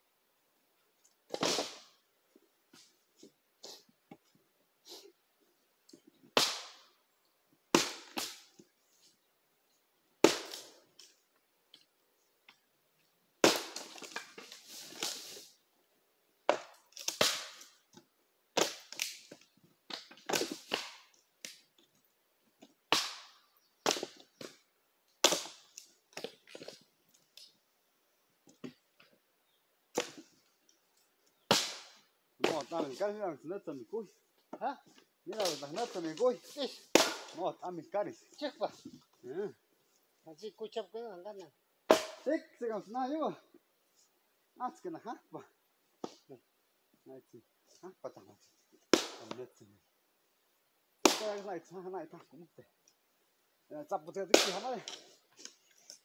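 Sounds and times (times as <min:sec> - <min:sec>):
axe chopping wood: 0:01.3 - 0:01.9, 0:06.4 - 0:06.9, 0:07.7 - 0:08.5, 0:10.2 - 0:10.7, 0:13.4 - 0:14.4, 0:16.5 - 0:17.8, 0:18.6 - 0:19.3, 0:19.9 - 0:21.1, 0:22.9 - 0:24.6, 0:25.2 - 0:25.6, 0:31.5 - 0:32.8, 0:36.9 - 0:37.4, 0:41.9 - 0:42.3, 0:48.9 - 0:49.4, 0:51.0 - 0:51.4, 0:54.3 - 0:55.0.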